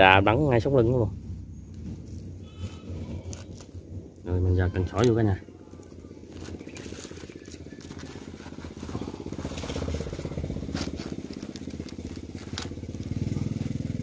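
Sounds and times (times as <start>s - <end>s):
sharp crackles: 1.7s - 14.0s
small engine puttering: 4.8s - 14.0s.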